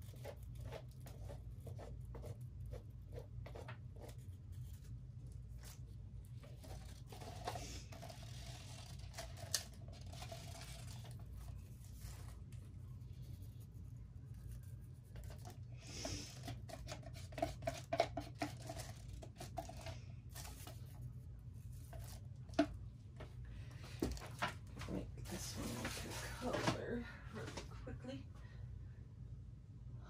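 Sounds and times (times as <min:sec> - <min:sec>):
stick scraping in plastic cup: 0:06.4 - 0:11.4, 0:15.1 - 0:20.8.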